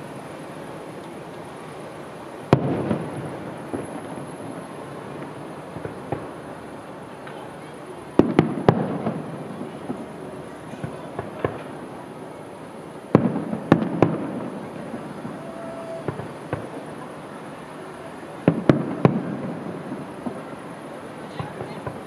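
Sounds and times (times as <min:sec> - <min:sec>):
firework shells bursting: 0:02.4 - 0:12.0, 0:13.1 - 0:17.1.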